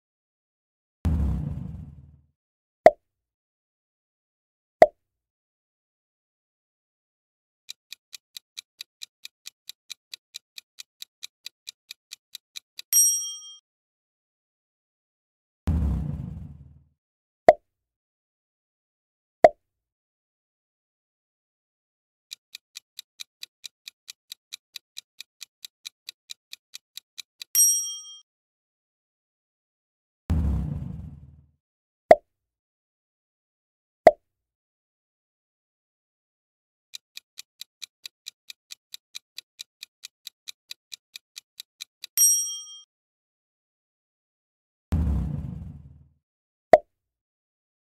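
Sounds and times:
short pop sound effect: 1.1s - 2.2s
rapid clock-like ticking: 7.7s - 12.9s, 22.4s - 27.5s, 37.0s - 42.1s
bright bell ding: 13.0s - 13.6s, 27.6s - 28.2s, 42.2s - 42.8s.

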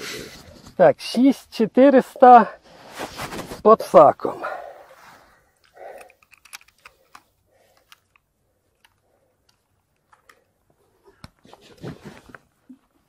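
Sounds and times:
soft rustles of handling: 2.6s - 4.1s, 4.8s - 13.0s
small clicks: 5.6s - 10.5s.

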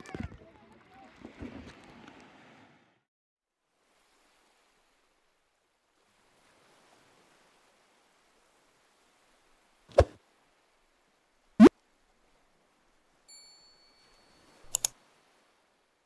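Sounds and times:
bell-like ding: 13.3s - 14.5s
mouse click: 14.7s - 14.9s.

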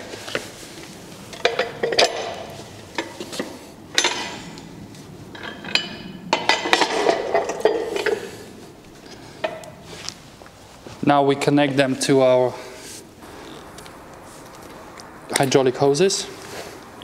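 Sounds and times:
metal clanks and scrapes on concrete: 5.3s - 8.4s.

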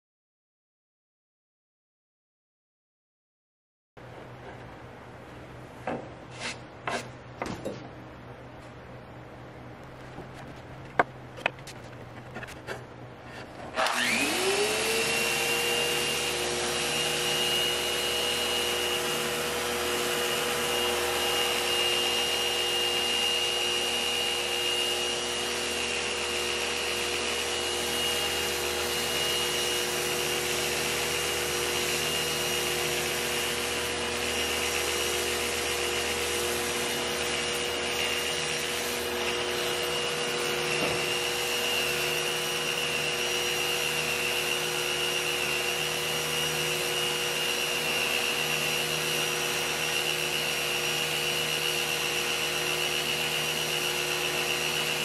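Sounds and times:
sandpaper hissing on wood: 6.3s - 7.1s
power sander motor whine: 13.7s - 55.0s.

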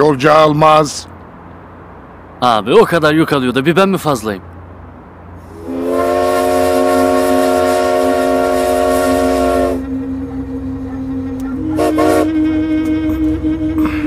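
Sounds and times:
low steady hum: 5.3s - 14.0s
train horn blast: 5.5s - 14.0s.

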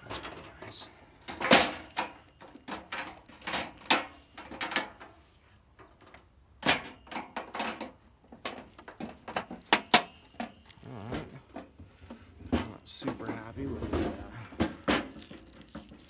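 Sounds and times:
grill lid opening and shutting: 0.0s - 5.2s, 5.9s - 11.8s.

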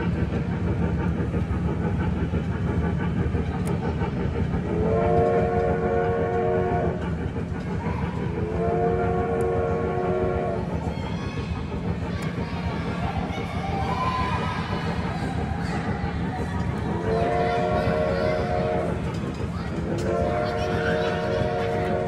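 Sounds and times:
low rumble of train running: 0.0s - 22.0s
train whistle chord: 4.9s - 6.9s, 8.6s - 10.5s.

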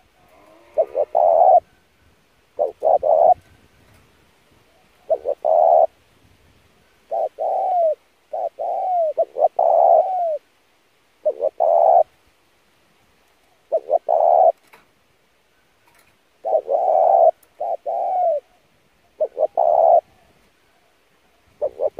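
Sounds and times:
dove cooing: 0.0s - 1.7s, 2.6s - 3.5s, 4.7s - 6.0s, 7.1s - 10.5s, 11.2s - 12.1s, 13.5s - 14.6s, 16.4s - 21.9s.

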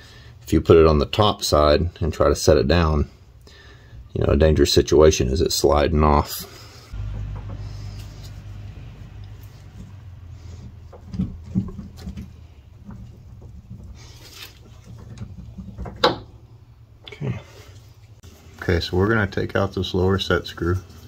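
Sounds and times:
low steady hum: 6.5s - 20.2s
light metal knocks: 7.0s - 7.8s.

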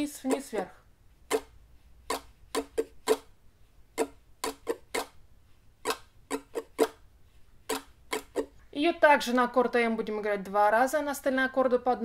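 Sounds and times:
ukulele strumming: 5.9s - 7.0s.

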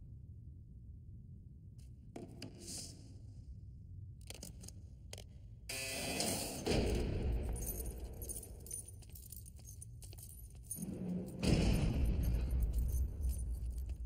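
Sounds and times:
keys jangling: 7.3s - 14.0s
heavy door clanking open: 11.0s - 13.4s.

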